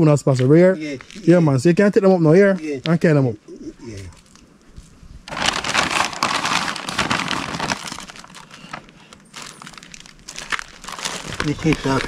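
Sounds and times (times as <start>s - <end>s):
plastic bags crinkling: 5.3s - 12.0s.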